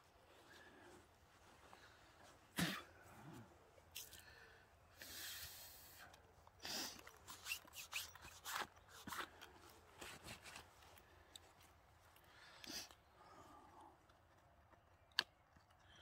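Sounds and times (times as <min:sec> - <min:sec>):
small clicks and rustles: 0:05.9 - 0:16.0.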